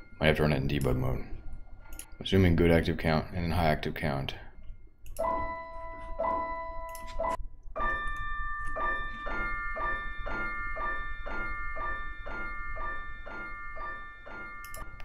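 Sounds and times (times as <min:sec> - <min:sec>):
bell-like music notes: 0:04.6 - 0:15.0.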